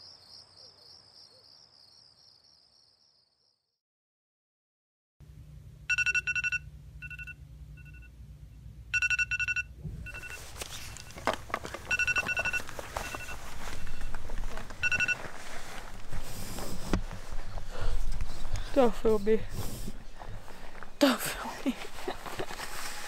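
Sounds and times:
phone alarm beeping: 5.9s - 8.2s, 8.9s - 15.6s
rustling and knocks: 9.9s - 17.6s.

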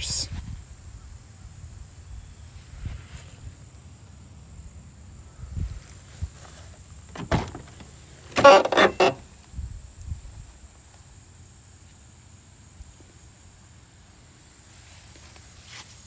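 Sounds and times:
car door rattling scrape: 7.0s - 9.2s
car door latch click: 7.2s - 9.1s.

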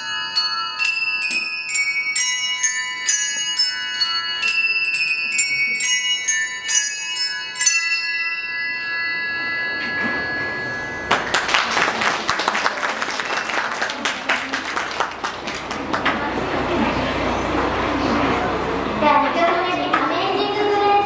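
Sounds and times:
handbells ringing: 0.0s - 15.3s
audience applause: 11.1s - 16.4s.

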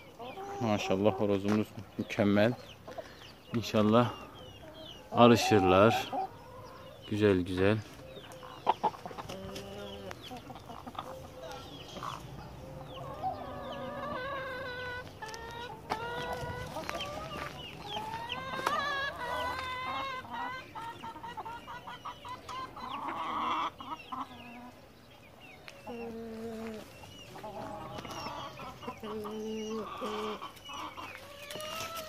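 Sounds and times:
hens clucking: 0.0s - 32.0s.

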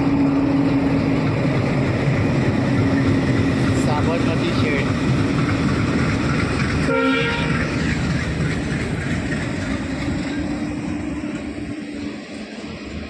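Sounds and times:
train wheels clattering over rail joints: 0.5s - 13.0s
train horn blast: 6.8s - 7.7s.

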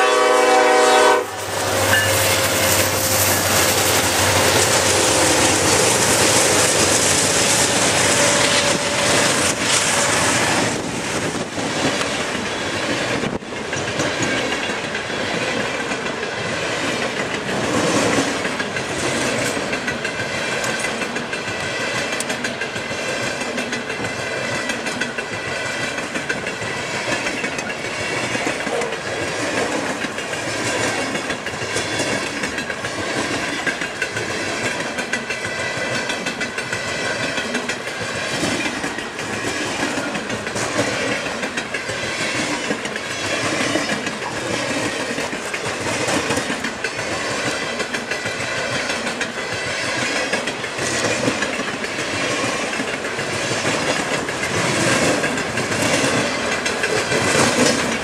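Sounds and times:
train rumble: 0.0s - 58.0s
train wheels clicking on rail joints: 0.0s - 58.0s
high ringing tone: 1.8s - 3.8s.

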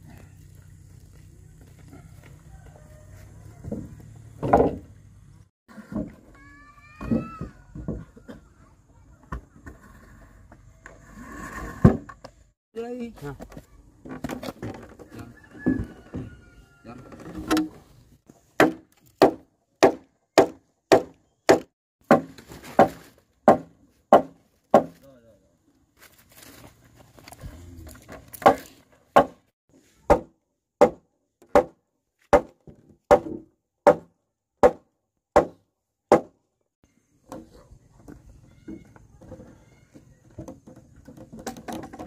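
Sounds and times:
tool striking wood: 18.6s - 25.0s, 28.4s - 29.4s, 30.1s - 34.8s, 35.4s - 36.4s.

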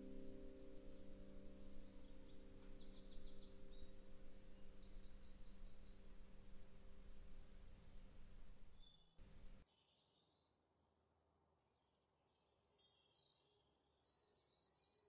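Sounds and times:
low hiss: 0.0s - 9.6s
faint bird chirps and trills: 0.0s - 10.3s.

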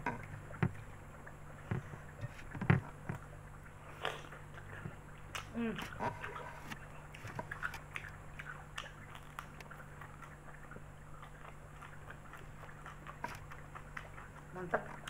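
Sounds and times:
steady low hum: 0.0s - 15.0s
person chewing and biting food: 3.8s - 15.0s.

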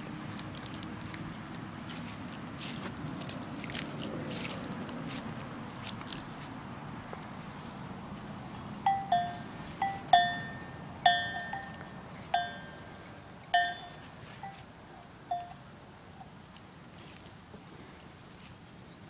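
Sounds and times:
metal bells clanking: 8.5s - 14.6s, 15.3s - 15.6s.

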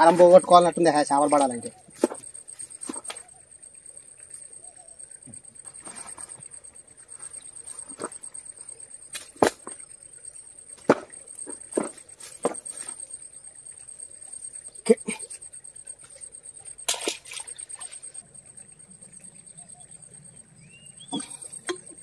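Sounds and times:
rustles: 5.7s - 9.8s.

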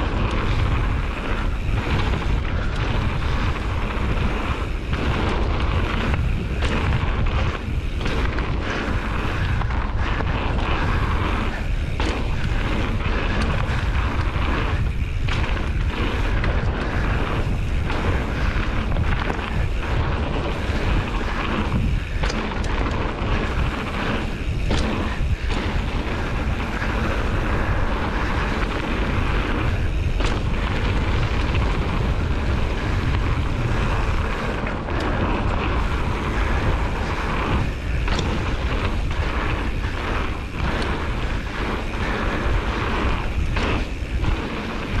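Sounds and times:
bike rattling over bumps: 0.0s - 45.0s
bike tyres rolling on dirt: 0.0s - 45.0s
wind on microphone: 0.0s - 45.0s.

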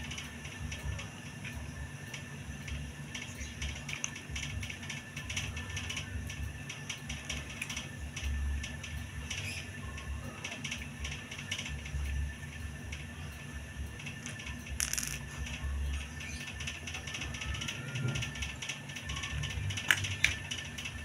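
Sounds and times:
low hum: 0.0s - 21.0s
stones clicking on cardboard: 14.2s - 15.3s.

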